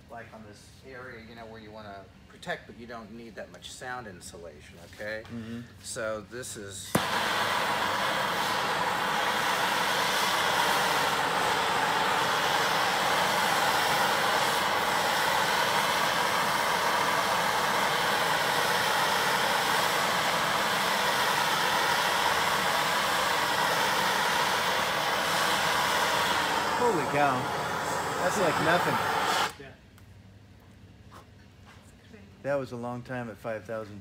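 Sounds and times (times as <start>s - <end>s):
gas torch hissing: 6.0s - 29.6s.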